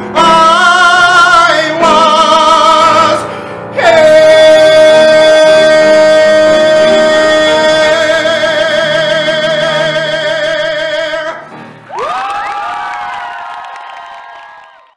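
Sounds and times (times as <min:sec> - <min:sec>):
man singing a high note: 0:00.0 - 0:11.6
musical accompaniment: 0:00.0 - 0:14.9
audience whooping and cheering: 0:11.9 - 0:14.9.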